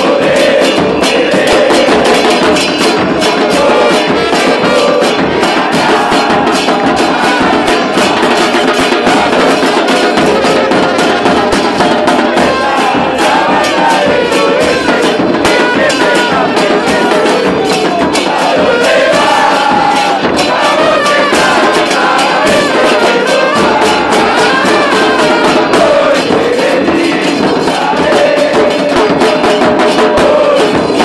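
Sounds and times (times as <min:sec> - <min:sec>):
bass drums beating: 0:00.0 - 0:31.0
crowd singing: 0:00.0 - 0:31.0
trumpets and trombones playing: 0:03.4 - 0:08.1, 0:12.4 - 0:27.2.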